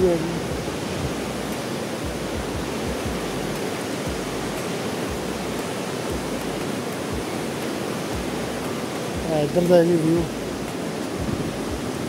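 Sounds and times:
low bumps: 0:00.0 - 0:07.3, 0:10.2 - 0:12.0
river rushing: 0:00.0 - 0:12.0.

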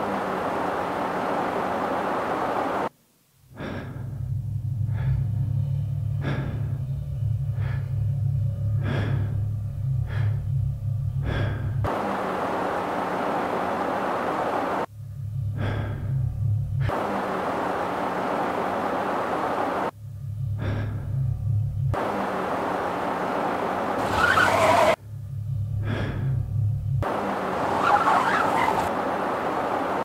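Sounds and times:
car road noise inside cabin: 0:00.0 - 0:02.9, 0:04.2 - 0:30.0
low steady drone: 0:00.0 - 0:27.8
sharp gasping breaths: 0:03.6 - 0:04.2, 0:06.2 - 0:06.8, 0:07.5 - 0:08.0, 0:08.8 - 0:09.4, 0:10.1 - 0:10.4, 0:11.2 - 0:11.8, 0:15.6 - 0:16.2, 0:20.6 - 0:21.2, 0:25.8 - 0:26.4.

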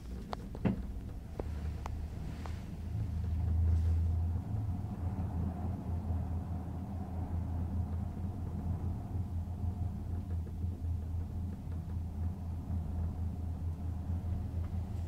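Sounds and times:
gondola cabin rumbling on cable: 0:00.0 - 0:15.0.

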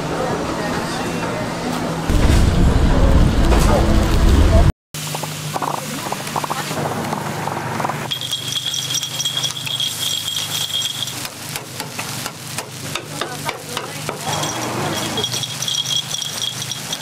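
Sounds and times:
batter sizzling in a pan: 0:05.0 - 0:17.0
thin high tone: 0:08.0 - 0:11.2
metal scraper scraping a pan: 0:13.8 - 0:17.0.

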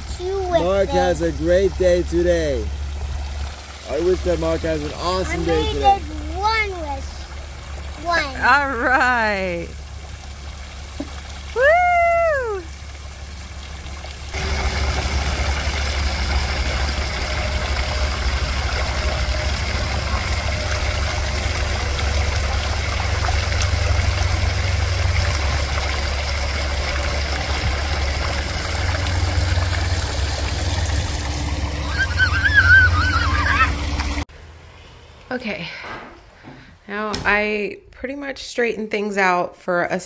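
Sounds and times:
waterfall pouring into pond: 0:00.0 - 0:34.3
deep rumble: 0:07.1 - 0:34.2.

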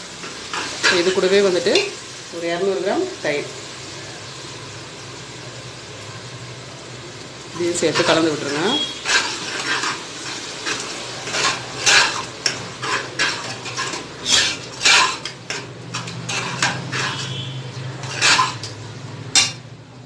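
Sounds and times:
metal spatula scraping a pot: 0:07.8 - 0:19.6.

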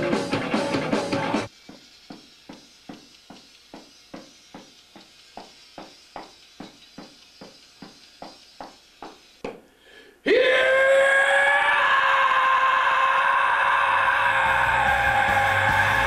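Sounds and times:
loud music: 0:00.0 - 0:01.5, 0:14.0 - 0:16.0.

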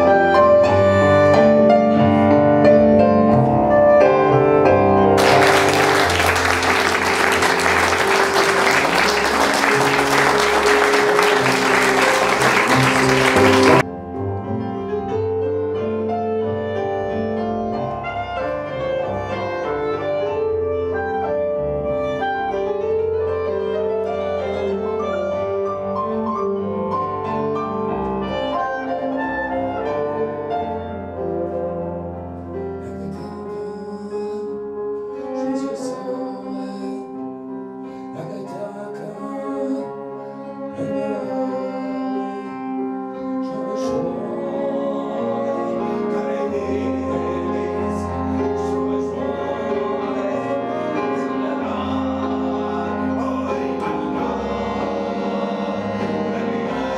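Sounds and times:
instrumental piano music: 0:00.0 - 0:56.9
audience applauding: 0:05.2 - 0:13.9.

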